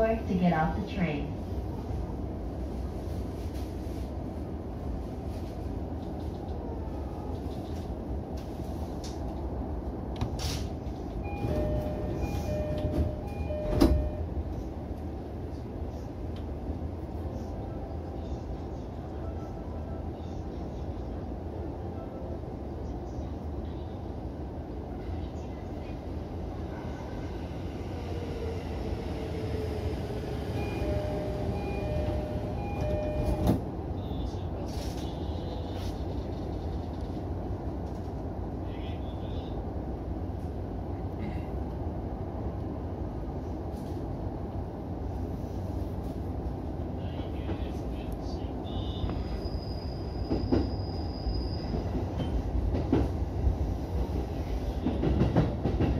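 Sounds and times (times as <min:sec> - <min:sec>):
train hum: 0:00.0 - 0:55.9
two-tone door chime: 0:11.3 - 0:14.3, 0:30.6 - 0:33.6
sliding doors closing with thump: 0:11.4 - 0:14.1
train doors thudding shut: 0:11.4 - 0:14.2, 0:31.0 - 0:33.7.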